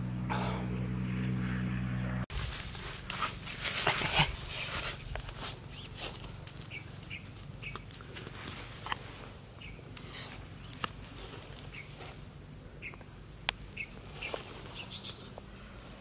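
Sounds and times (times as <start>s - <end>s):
stick scraping dry soil: 2.3s - 9.3s.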